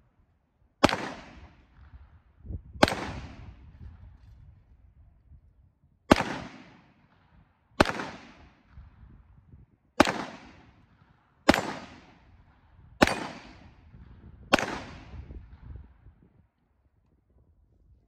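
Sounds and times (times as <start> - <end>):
pistol shots with echo: 0.8 - 2.1, 2.8 - 3.6, 6.1 - 7.2, 7.8 - 8.8, 10.0 - 13.9, 14.5 - 15.3.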